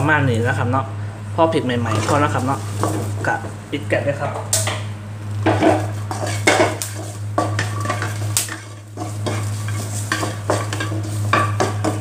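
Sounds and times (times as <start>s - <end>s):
steady low hum: 0.0s - 12.0s
light sizzle: 4.5s - 12.0s
spatula scraping a wok: 5.5s - 12.0s.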